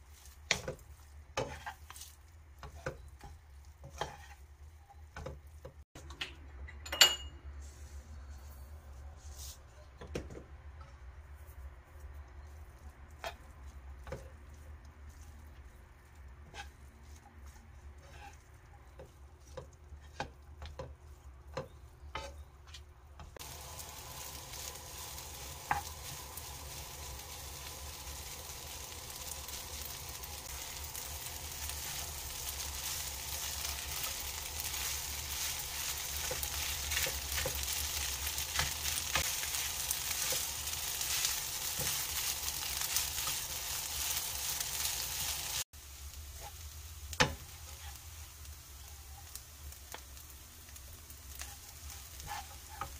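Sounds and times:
rice sizzling: 0.0 - 6.0, 11.3 - 52.9
spatula scraping and tapping pan: 0.0 - 6.3, 9.9 - 23.4, 24.6 - 26.5, 31.2 - 45.3, 46.4 - 48.0, 51.3 - 52.9.

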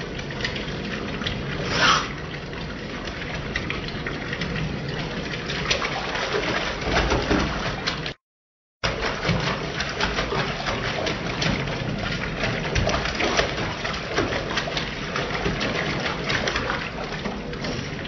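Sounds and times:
tap water running into bathtub: 0.0 - 8.2, 8.8 - 18.0
cat splashing in water: 8.9 - 18.0.

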